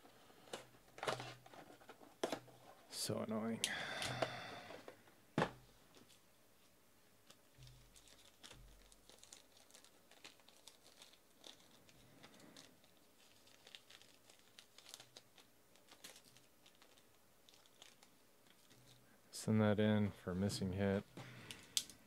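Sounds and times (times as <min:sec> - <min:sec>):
wrapper crinkling and tearing: 0:07.3 - 0:19.0.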